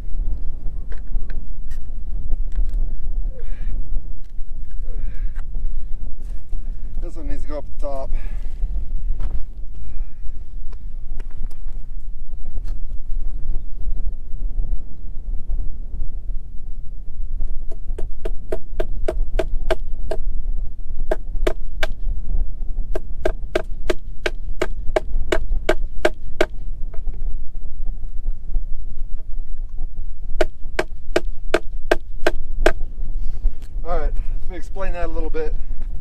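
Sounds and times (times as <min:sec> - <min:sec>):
hammer striking a fastener into wood: 0:30.4 - 0:32.8.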